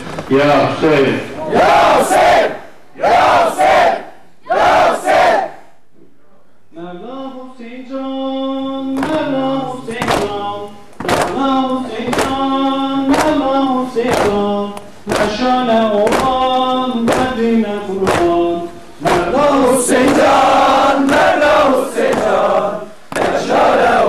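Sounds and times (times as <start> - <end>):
crowd chanting: 1.4 - 5.6, 19.0 - 24.0.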